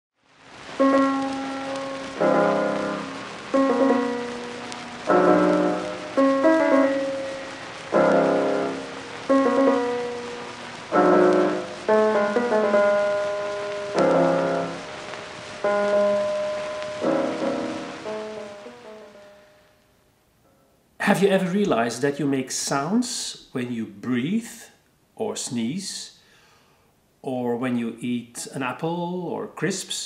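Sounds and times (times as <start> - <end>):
slow piano chords: 0.6 - 19.8.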